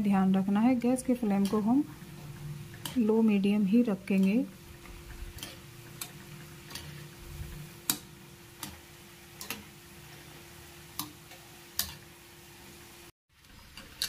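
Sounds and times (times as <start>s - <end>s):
oil frying sizzle: 0.0s - 14.0s
wire skimmer clicking on metal: 1.3s - 1.7s, 2.7s - 3.1s, 9.4s - 9.7s.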